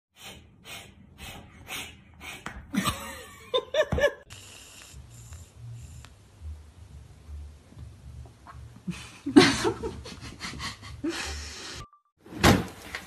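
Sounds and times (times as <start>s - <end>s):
person laughing hard: 2.7s - 4.2s, 8.9s - 11.5s.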